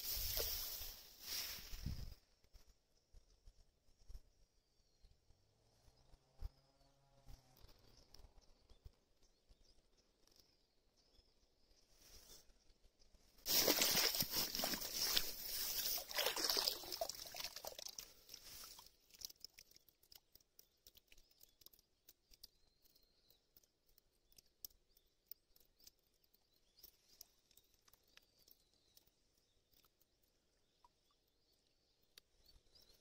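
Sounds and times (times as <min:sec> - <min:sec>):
leaf debris crinkling: 0:00.0 - 0:01.8, 0:13.5 - 0:18.9
net rustling and sloshing: 0:13.5 - 0:19.4.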